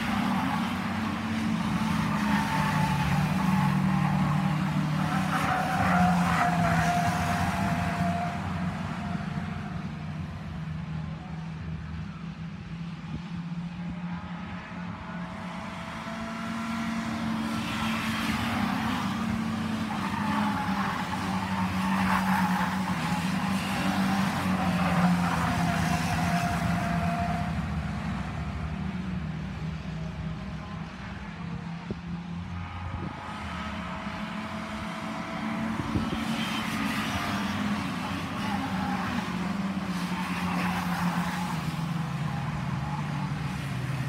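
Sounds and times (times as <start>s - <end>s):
race cars passing: 0.0s - 44.0s
steady engine drone: 29.9s - 36.6s.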